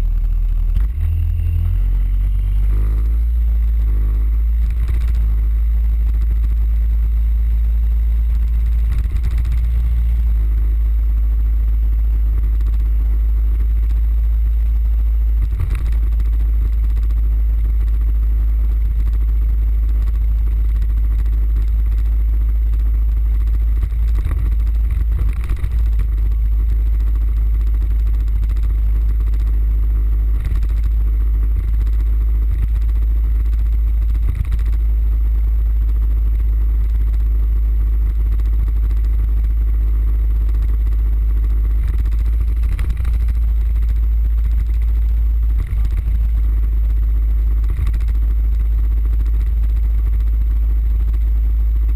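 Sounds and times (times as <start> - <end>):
scooter engine drone: 0.0 - 51.9
wind rumble on microphone: 41.8 - 47.0, 47.6 - 50.3.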